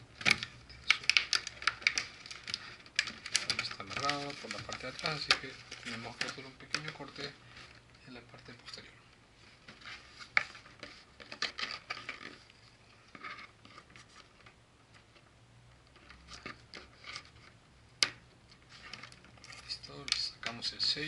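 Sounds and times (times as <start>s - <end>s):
cardboard rustling: 0.1s - 14.5s.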